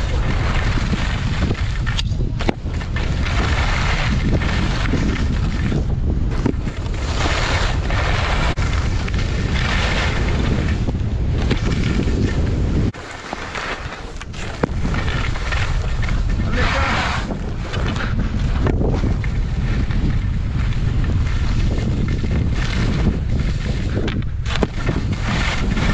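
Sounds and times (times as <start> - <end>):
skis scraping over snow: 0.0 - 25.9
wind buffeting microphone: 0.0 - 25.9.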